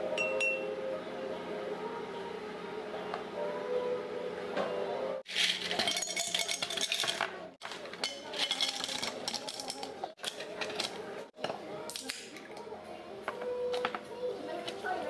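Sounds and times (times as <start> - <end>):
ice cubes clinking into glass: 5.3 - 10.9.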